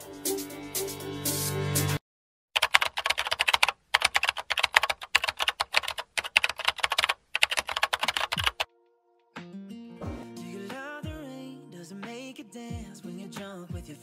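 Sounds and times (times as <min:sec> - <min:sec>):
keyboard typing: 0:02.6 - 0:08.7.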